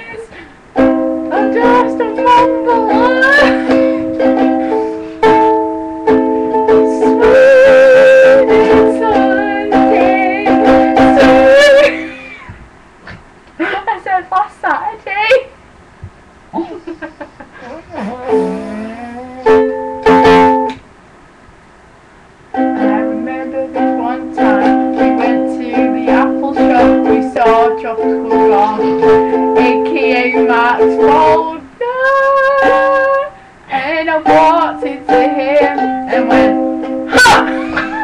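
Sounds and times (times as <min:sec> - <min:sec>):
ukulele strumming chords: 0:00.8 - 0:12.1, 0:18.3 - 0:20.8, 0:22.5 - 0:38.0.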